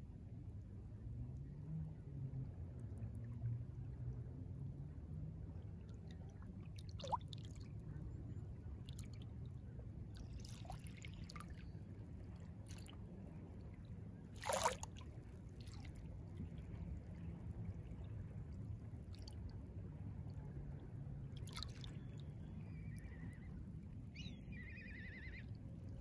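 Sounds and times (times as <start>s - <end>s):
water plops and splashes: 6.9s - 7.6s, 14.4s - 15.0s, 21.4s - 21.9s
small waves lapping: 10.2s - 11.6s, 12.4s - 13.2s, 14.3s - 16.9s, 21.4s - 22.2s.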